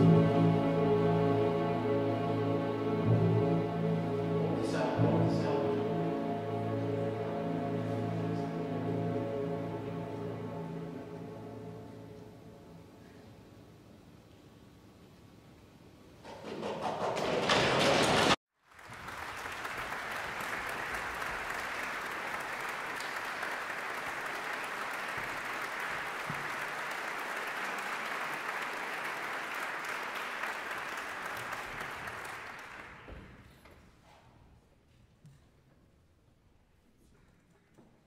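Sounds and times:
orchestra playing: 0.0 - 13.0
audience applauding: 16.9 - 33.5.

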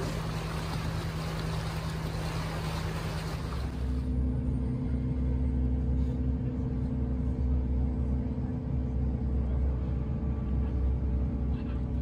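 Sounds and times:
vehicle engine drone: 0.0 - 12.0.

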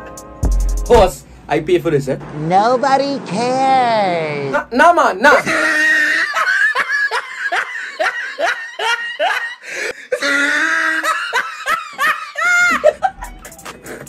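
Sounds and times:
man laughing hard: 5.4 - 14.0.

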